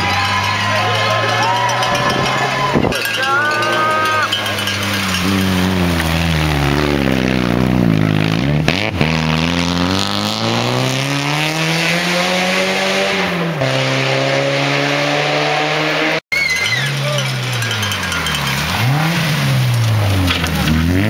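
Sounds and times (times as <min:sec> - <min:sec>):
rally car engine: 0:00.0 - 0:21.0.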